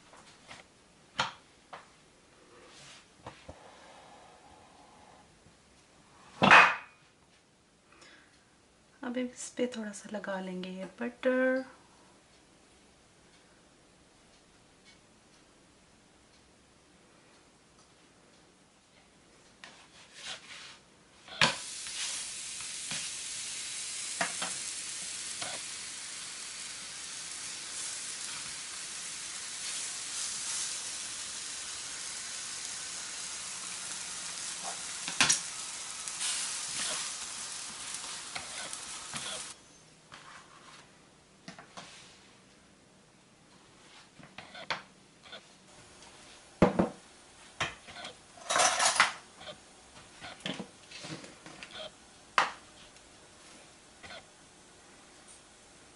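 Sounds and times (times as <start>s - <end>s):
bread sizzling on a griddle: 21.3s - 39.6s.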